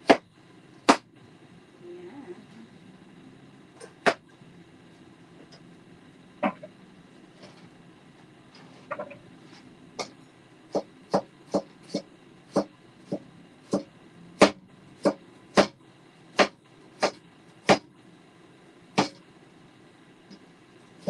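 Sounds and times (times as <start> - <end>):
knife chopping on a cutting board: 10.7 - 15.8, 16.4 - 17.9, 19.0 - 19.2.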